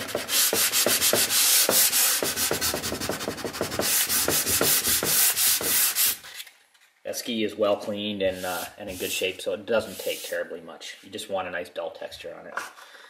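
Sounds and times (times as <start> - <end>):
sandpaper rasping on ski base: 0.0 - 6.3, 8.3 - 10.6.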